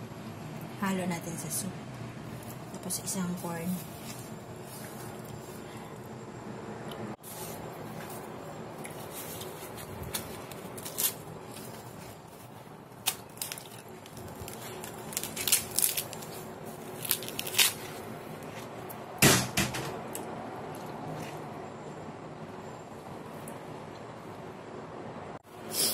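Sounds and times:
faint steady hum: 0.0 - 25.9
corn husks tearing: 7.3 - 18.8.

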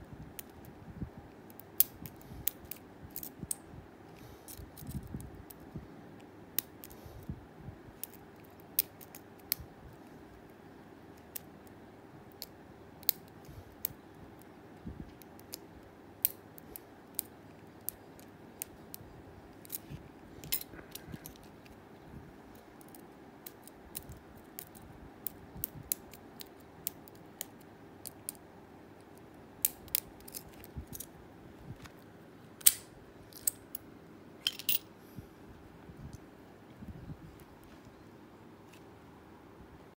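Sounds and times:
lock pick clicking in padlock: 32.6 - 33.8.

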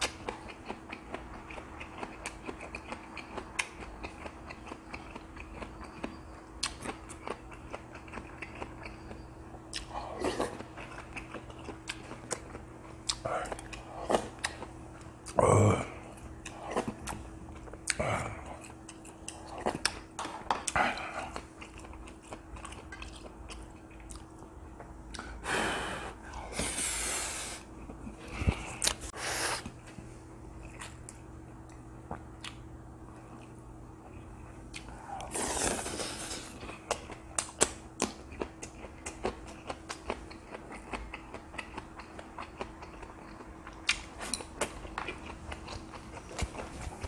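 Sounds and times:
wet chewing and biting: 0.0 - 15.4, 33.4 - 47.0
faint steady hum: 0.0 - 47.0.

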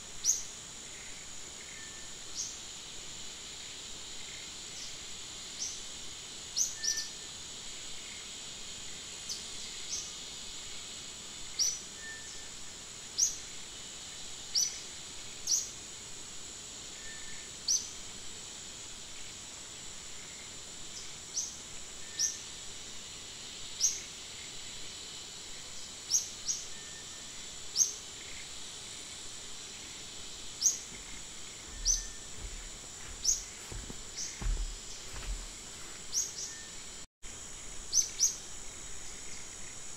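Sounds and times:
high insect drone: 0.0 - 39.9
low bumps: 30.8 - 36.1.

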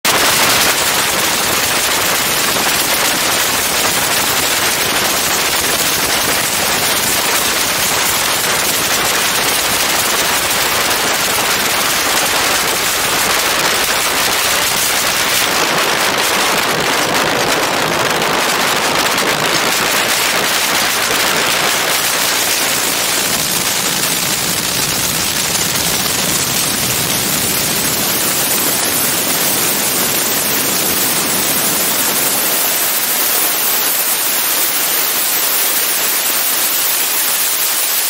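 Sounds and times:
aircraft engine and propeller running: 0.1 - 38.0.

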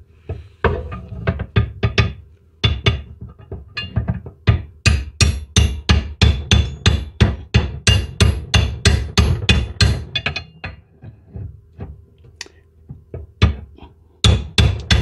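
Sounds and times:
hammer striking crowbar: 3.8 - 10.6, 14.2 - 15.0.

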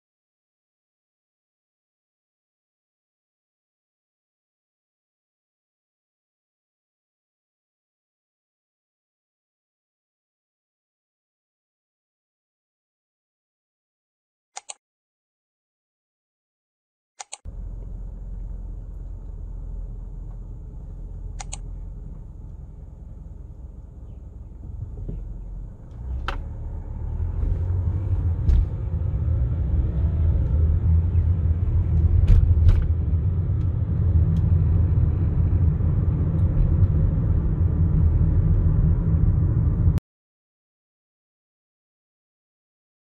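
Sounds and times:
car driving rumble: 17.5 - 40.0
faint clicks: 21.4 - 21.7.

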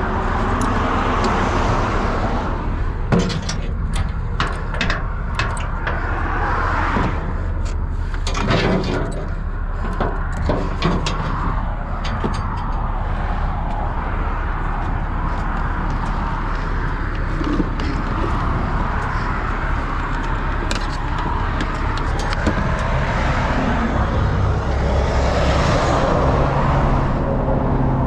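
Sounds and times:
steady low rumble: 0.0 - 28.0
metal clanks: 3.0 - 13.9.

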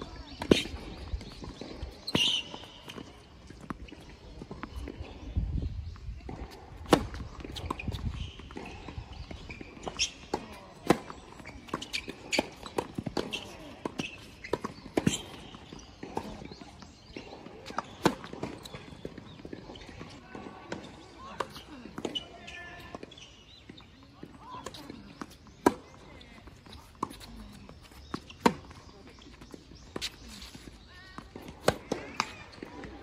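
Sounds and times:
tennis ball bouncing: 6.2 - 23.8, 24.5 - 33.0
footsteps on court: 6.2 - 33.0
racket hitting tennis ball: 6.3 - 8.8, 9.8 - 22.3, 31.3 - 33.0.

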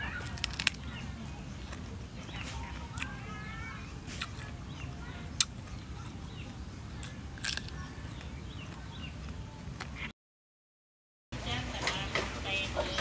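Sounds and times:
wet mouth smacks and sucking: 4.1 - 4.5.

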